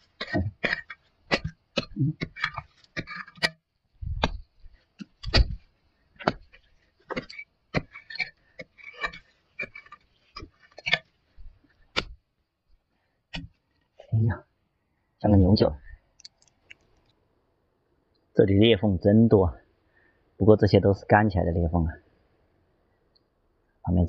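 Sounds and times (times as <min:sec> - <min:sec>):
hoe chopping into dry soil: 0:00.1 - 0:11.0, 0:11.9 - 0:12.2, 0:13.3 - 0:13.5.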